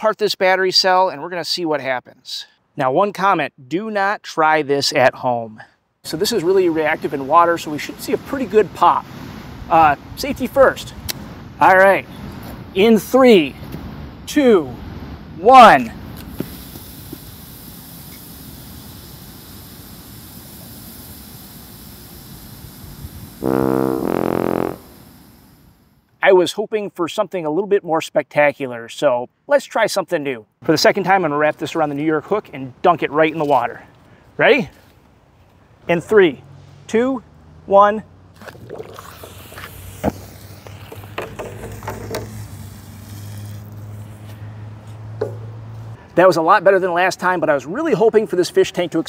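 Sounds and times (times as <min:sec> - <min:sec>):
two-note brass sound effect: 0:23.4 - 0:25.1.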